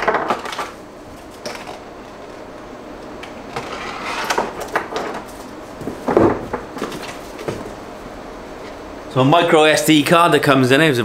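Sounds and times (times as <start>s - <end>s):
handling knocks: 4.4s - 7.8s.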